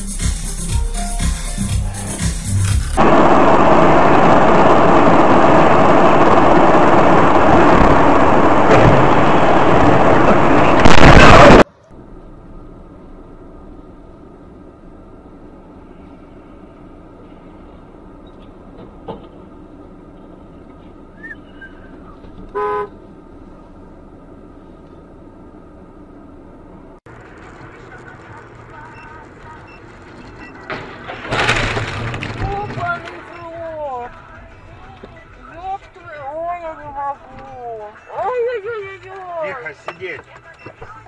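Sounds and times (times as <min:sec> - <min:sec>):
car engine hum: 0:01.6 - 0:41.0
road and wind noise: 0:01.9 - 0:41.0
car horn toot: 0:22.5 - 0:23.0.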